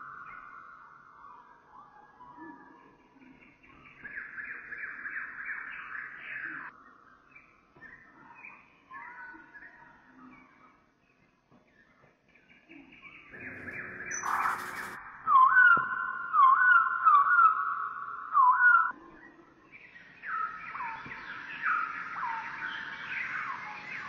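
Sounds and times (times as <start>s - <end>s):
bird-like chirping and whistling: 13.3s - 19.0s.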